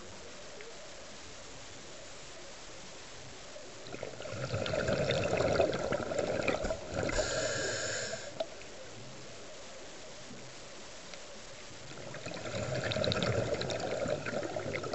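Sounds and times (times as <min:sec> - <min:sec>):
exhaled bubbles gurgling: 0:03.8 - 0:08.5, 0:11.8 - 0:14.9
regulator inhale hiss: 0:06.7 - 0:08.5.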